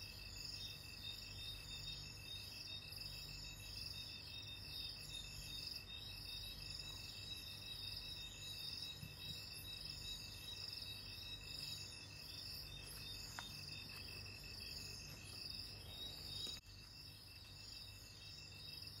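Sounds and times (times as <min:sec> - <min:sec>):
insects chirping trill: 0:00.0 - 0:19.0.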